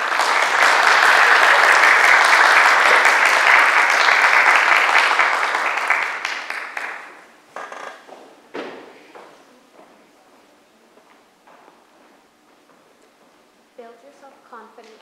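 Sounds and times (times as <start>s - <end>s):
audience clapping: 0.0s - 7.4s
footsteps on stage: 7.6s - 13.6s.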